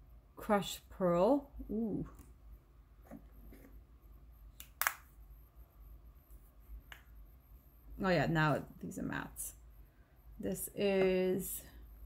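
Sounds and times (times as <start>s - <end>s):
room fan humming: 0.0s - 12.0s.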